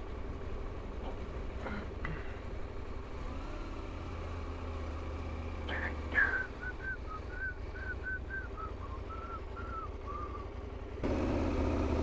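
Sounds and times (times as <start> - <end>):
loud engine noise: 0.0 - 12.0
low engine rumble: 0.0 - 12.0
whistle-like chirps: 6.5 - 10.5.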